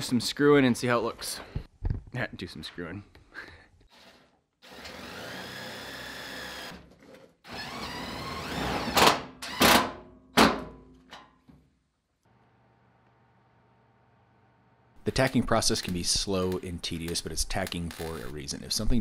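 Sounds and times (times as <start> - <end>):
cordless drill whining: 4.0 - 6.8, 7.5 - 9.0.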